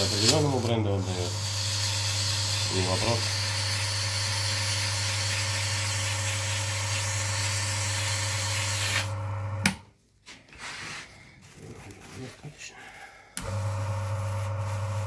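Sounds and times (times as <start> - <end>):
hissing rub of spinning roller: 0.0 - 3.2
electric motor humming: 0.0 - 9.8, 13.4 - 15.0.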